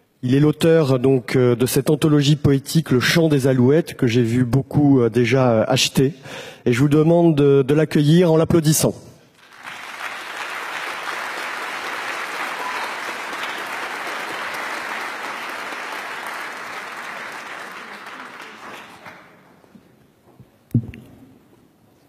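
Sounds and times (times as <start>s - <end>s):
audience applauding: 9.4s - 19.6s.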